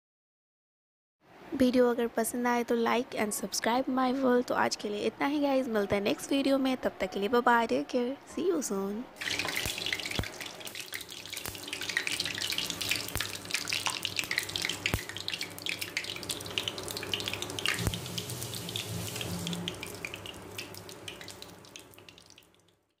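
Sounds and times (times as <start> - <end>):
food sizzling in hot oil: 9.2 - 22.7.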